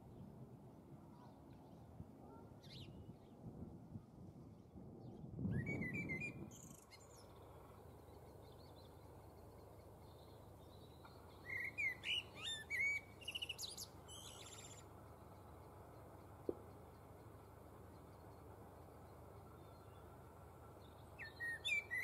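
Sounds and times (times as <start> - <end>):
blackbird singing: 5.5 - 15.5, 20.8 - 22.0.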